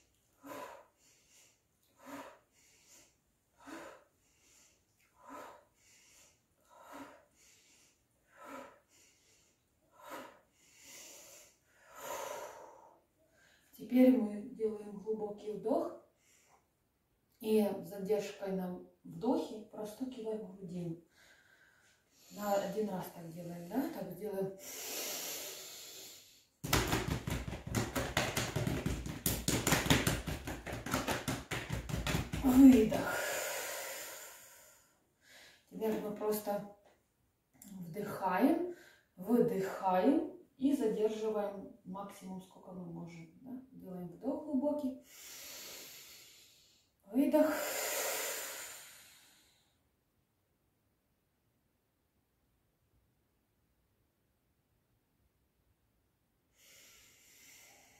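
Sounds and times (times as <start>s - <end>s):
hands tapping on chest: 26.6s - 33.0s.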